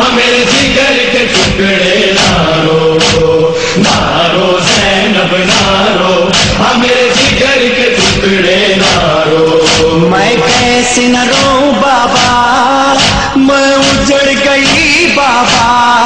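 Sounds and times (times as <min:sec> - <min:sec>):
steady beat: 0:00.0 - 0:15.9
man chanting lament: 0:00.0 - 0:16.0.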